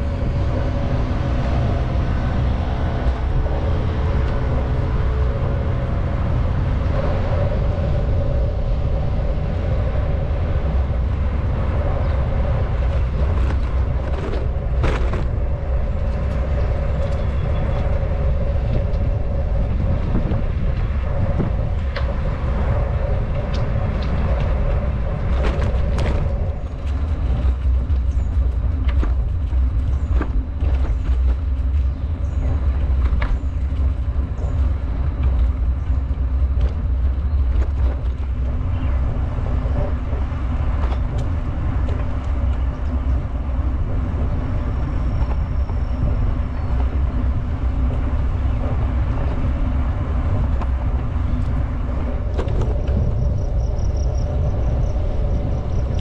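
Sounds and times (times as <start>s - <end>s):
bicycle tyre noise on pavement: 0.0s - 56.0s
wind rumble on microphone: 0.0s - 56.0s
bicycle knocks and rattles: 12.4s - 17.9s, 19.9s - 43.8s.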